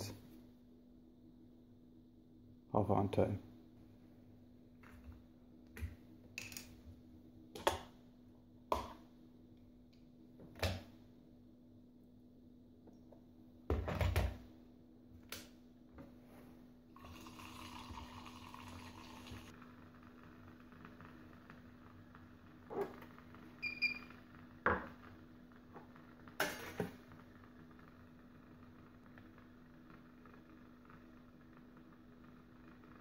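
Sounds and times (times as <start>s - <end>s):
milk frother whirring: 17.0s - 22.0s.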